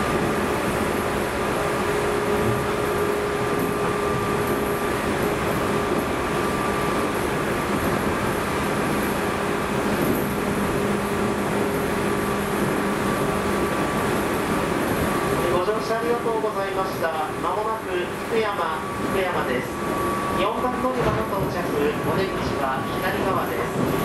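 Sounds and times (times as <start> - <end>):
wheels rumbling on rails: 0.0 - 24.0.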